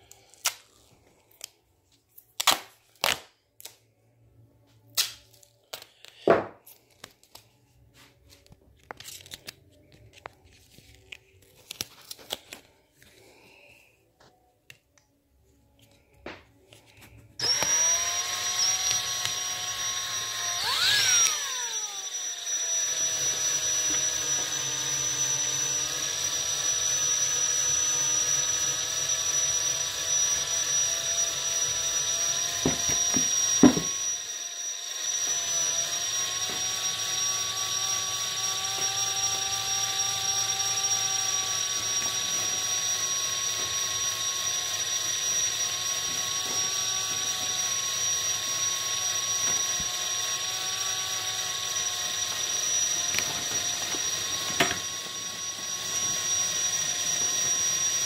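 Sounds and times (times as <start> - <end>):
small electric motor whirring: 17.4 - 58.0.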